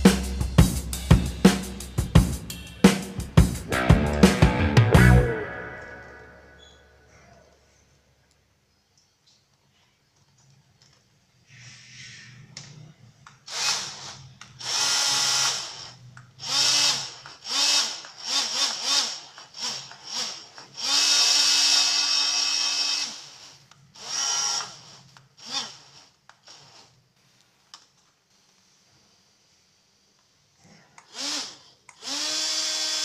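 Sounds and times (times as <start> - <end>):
small electric motor whining: 13.5 - 27.0, 31.0 - 33.0.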